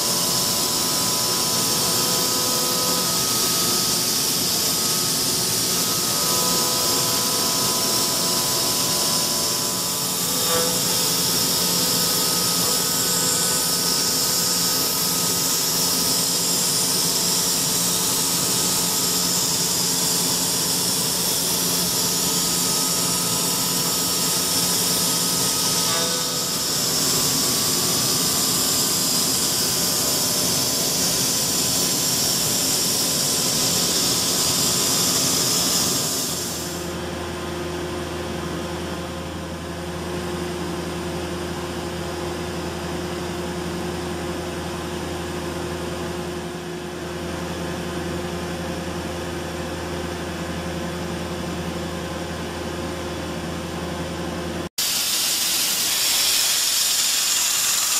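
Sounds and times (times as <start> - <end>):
milling machine spindle hiss: 0.0 - 36.9, 54.8 - 57.9.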